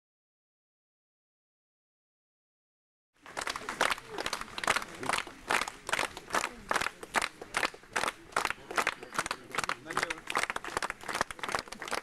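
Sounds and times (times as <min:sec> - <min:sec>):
crowd clapping in unison: 0:03.2 - 0:12.0.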